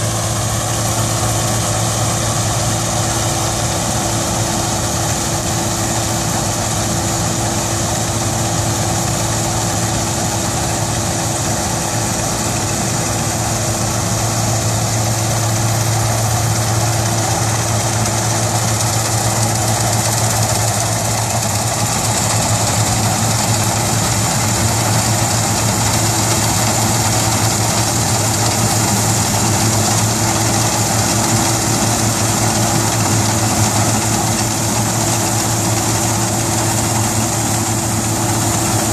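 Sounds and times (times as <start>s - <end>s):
combine harvester engine hum: 0.0s - 38.9s
threshing machinery whirring: 13.6s - 38.9s.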